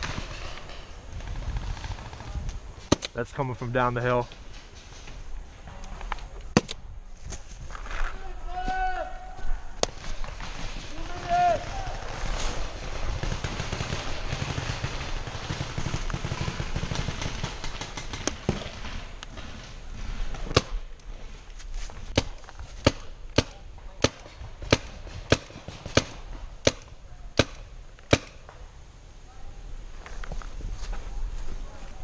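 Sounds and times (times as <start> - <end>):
paintball marker firing: 22.2 - 28.4.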